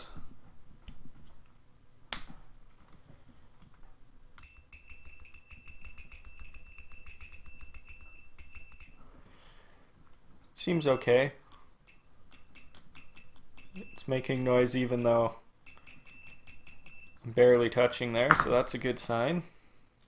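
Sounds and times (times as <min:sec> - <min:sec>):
steady high beep: 0:04.4 - 0:09.0, 0:10.8 - 0:11.3, 0:11.9 - 0:17.2
crackling ticks of probe tips: 0:11.5 - 0:17.0.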